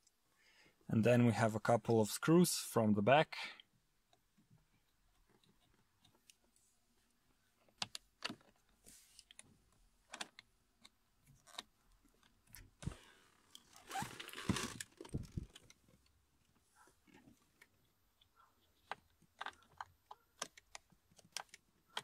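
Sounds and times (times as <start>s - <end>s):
rustling and rattling: 12.8s - 16.0s.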